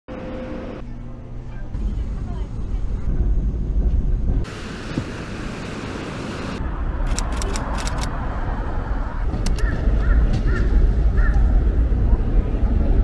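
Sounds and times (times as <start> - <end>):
low city rumble: 0.1 - 13.0
scattered clicks: 7.0 - 8.1, 9.4 - 9.7.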